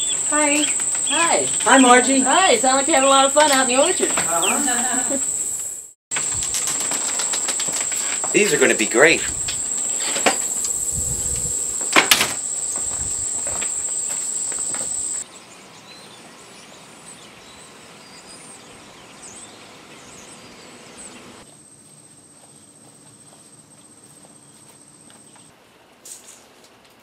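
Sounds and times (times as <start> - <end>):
insects trilling: 0.0 - 15.3.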